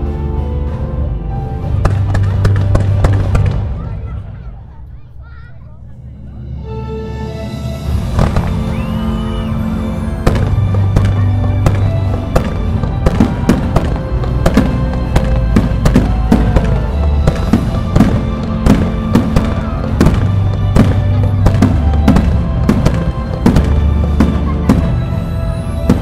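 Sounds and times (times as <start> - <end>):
fireworks launching and bursting: 1.7 - 4.2, 8.0 - 26.0.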